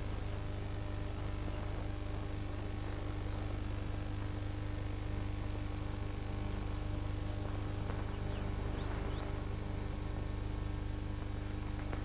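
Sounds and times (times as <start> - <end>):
film soundtrack hum and hiss: 0.0 - 12.0
faint bird chirps: 8.0 - 9.4.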